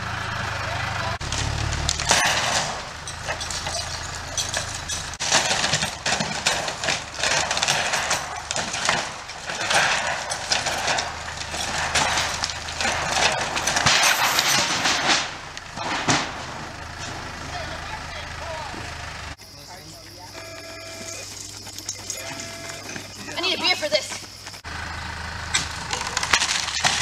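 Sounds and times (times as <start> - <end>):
boards splintering and clattering: 1.2 - 19.4, 25.5 - 27.0
wooden framing creaking and cracking: 1.2 - 19.4, 24.2 - 27.0.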